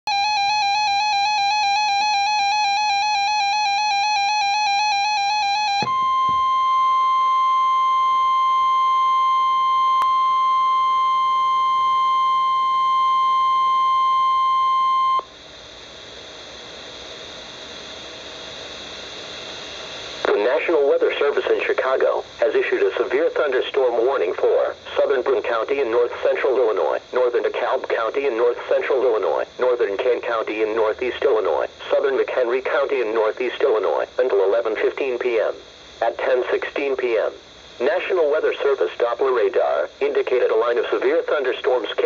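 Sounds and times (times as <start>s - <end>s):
steady alarm tone: 0.1s - 15.4s.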